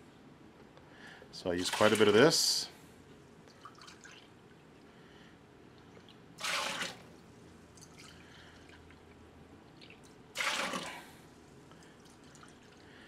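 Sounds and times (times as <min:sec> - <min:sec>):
liquid trickling into cup: 0:03.5 - 0:04.9, 0:07.8 - 0:11.0, 0:11.8 - 0:13.0
liquid splashing into metal pot: 0:06.0 - 0:07.1, 0:09.8 - 0:11.1.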